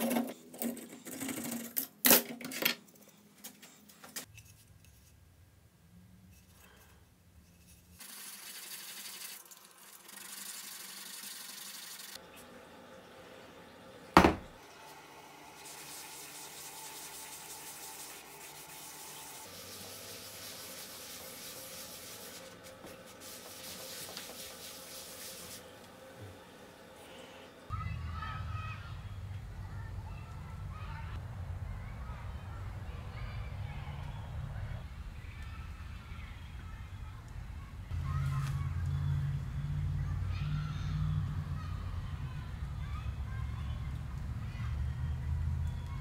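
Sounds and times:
cloth rubbing on wood: 15.6 - 25.8.

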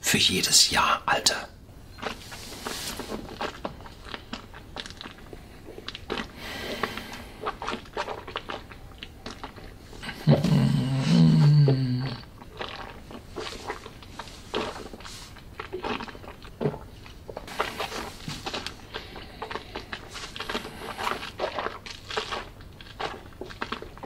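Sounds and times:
wet mouth clicks and lip smacks: 3.2 - 6.4, 7.1 - 9.8
man humming in throat: 10.0 - 12.3.

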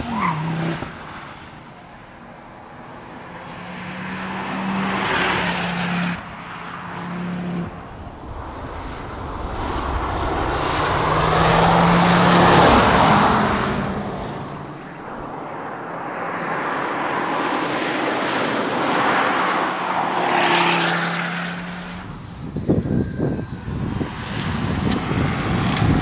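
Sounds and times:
rally car engine passing: 0.0 - 26.0.

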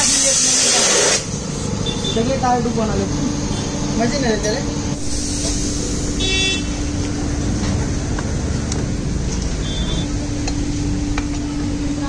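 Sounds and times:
constant low hum: 1.3 - 12.0
low background rumble: 4.0 - 12.0.

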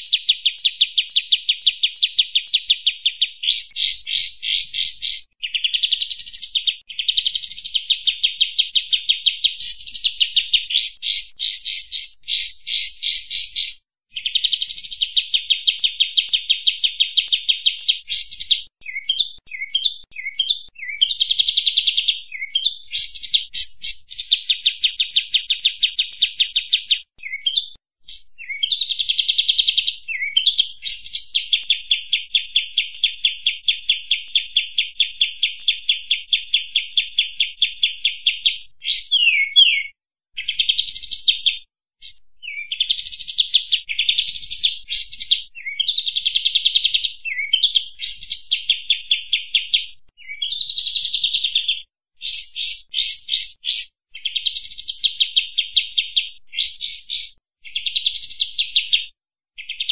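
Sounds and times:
bird singing chattering runs: 0.0 - 21.6
sharp whistled bird chirps: 0.0 - 59.9.

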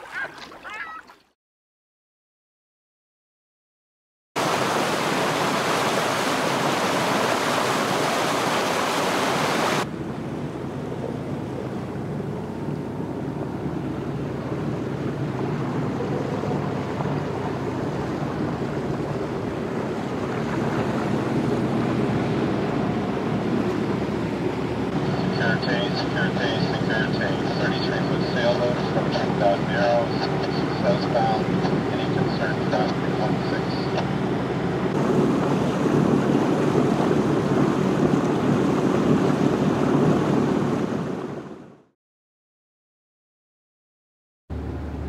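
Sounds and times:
water rushing along boat hull: 0.0 - 1.3, 4.4 - 41.9
wind on microphone: 34.6 - 41.7.

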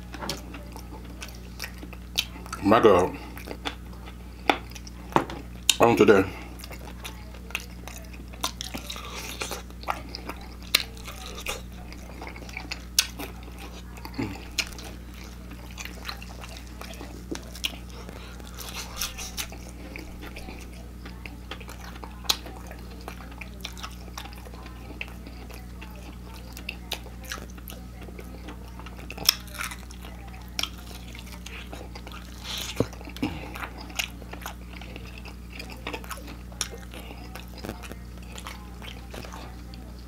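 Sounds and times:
crispy fried chicken crunching: 0.0 - 40.0
mouth chewing: 0.0 - 40.0
steady low hum: 0.0 - 40.0.

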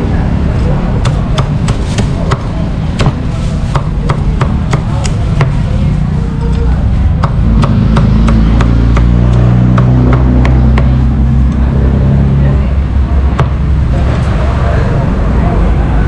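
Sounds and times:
traffic engine hum: 0.0 - 16.0
cleaver chopping pork: 1.0 - 5.6, 7.2 - 11.0.

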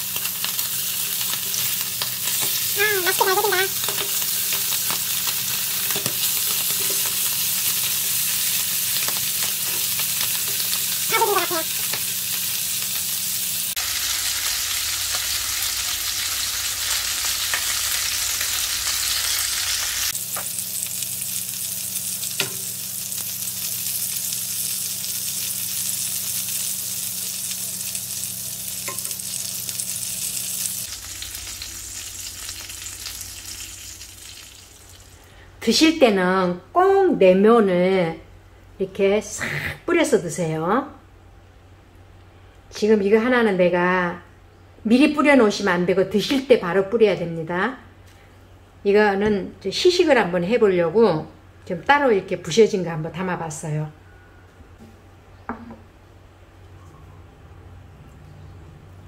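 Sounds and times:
fish sizzling in hot oil: 0.0 - 35.3.

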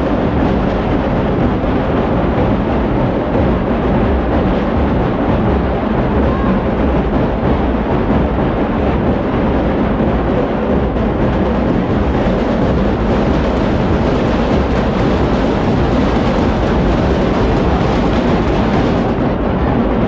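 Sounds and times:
festival drumming: 0.0 - 20.0
street crowd din: 0.0 - 20.0.

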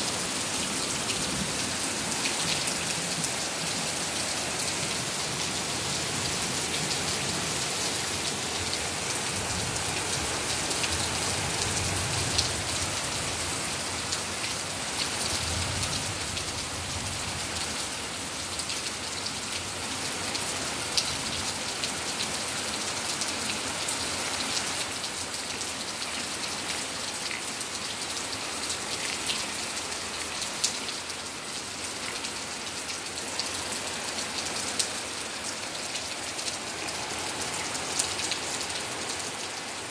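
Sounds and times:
rain on pavement: 0.0 - 39.9.

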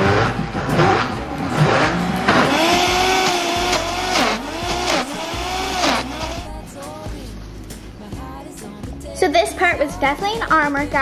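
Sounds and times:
blender motor running: 1.7 - 6.5.

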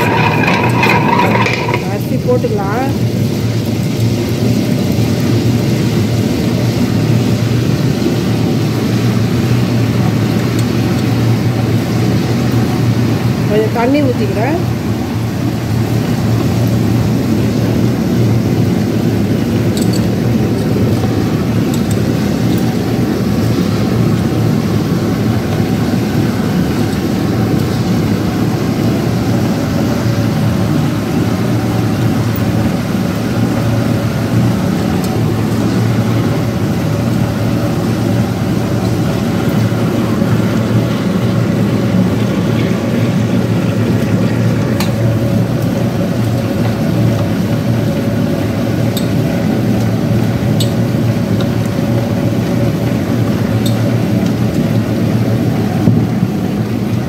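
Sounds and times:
wet grinder motor hum: 0.0 - 6.3.

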